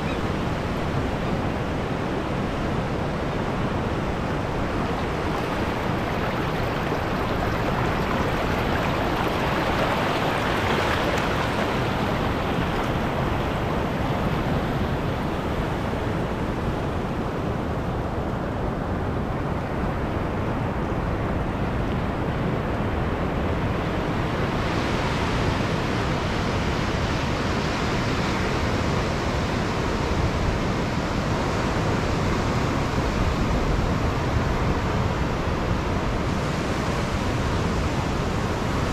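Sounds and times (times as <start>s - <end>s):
ocean surf breaking: 0.0s - 17.6s
seawater washing around rock: 3.6s - 16.2s.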